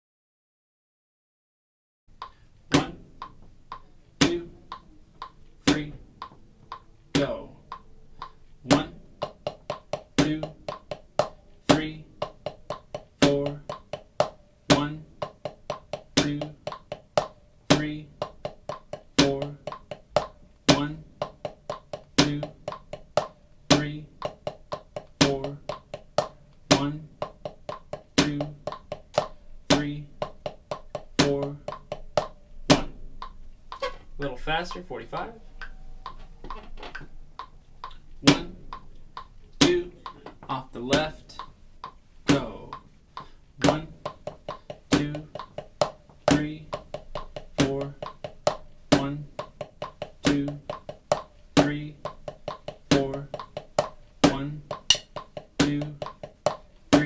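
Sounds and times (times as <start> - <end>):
metronome click: 2.1 - 27.0, 54.3 - 56.6
drumsticks on practice pad: 2.1 - 57.0.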